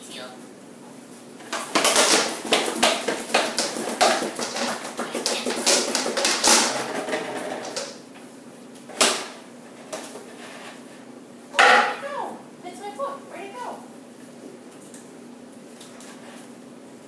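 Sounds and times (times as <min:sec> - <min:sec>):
plastic bottle clattering on tile: 0:01.4 - 0:08.0.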